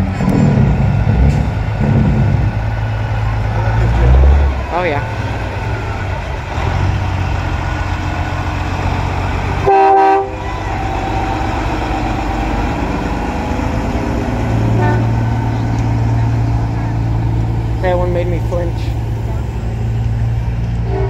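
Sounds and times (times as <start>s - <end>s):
diesel trucks rumbling past: 0.0s - 21.0s
truck air horn blast: 9.6s - 11.8s, 14.6s - 15.5s.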